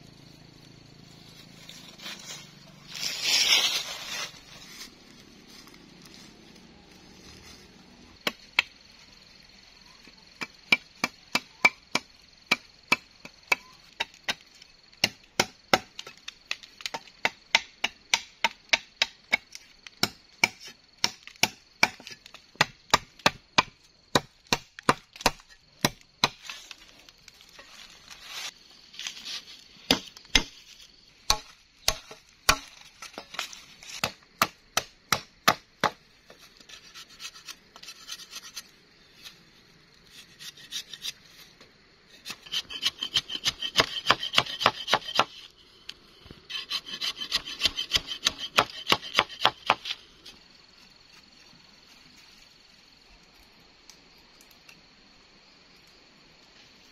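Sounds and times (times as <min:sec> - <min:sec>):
machete chopping wood: 0:08.2 - 0:08.7, 0:15.0 - 0:26.5, 0:29.8 - 0:30.6, 0:31.3 - 0:36.0, 0:42.3 - 0:45.4, 0:46.7 - 0:50.0.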